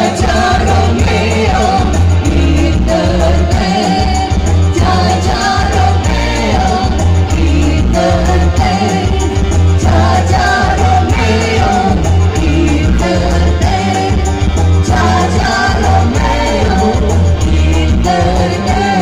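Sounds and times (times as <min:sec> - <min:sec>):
heavy bass: 0:00.0 - 0:19.0
keyboard: 0:00.0 - 0:19.0
live band music: 0:00.0 - 0:19.0
people singing into microphones: 0:00.0 - 0:19.0.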